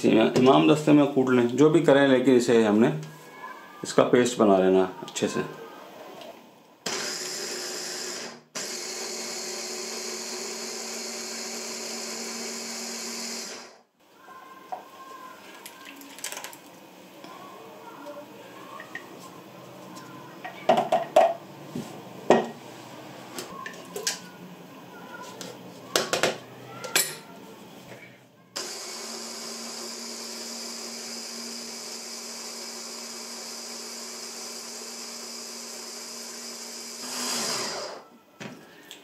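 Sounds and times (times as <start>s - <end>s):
hand blender motor chopping: 28.6s - 38.0s.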